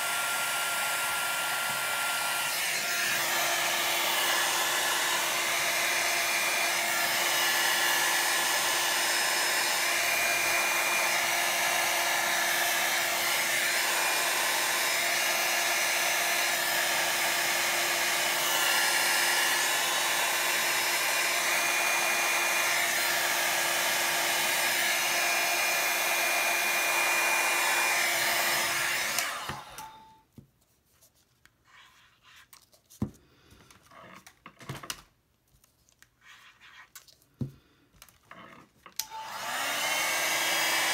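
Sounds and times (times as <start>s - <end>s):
hair dryer blowing: 0.0s - 30.2s, 39.0s - 40.9s.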